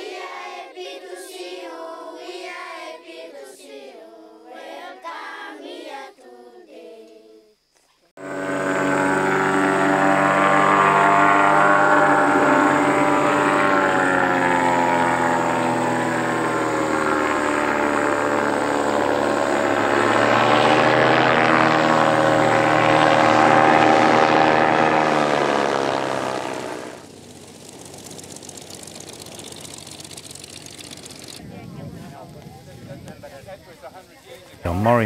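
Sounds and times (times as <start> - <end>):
light aircraft engine droning: 8.2 - 35.0.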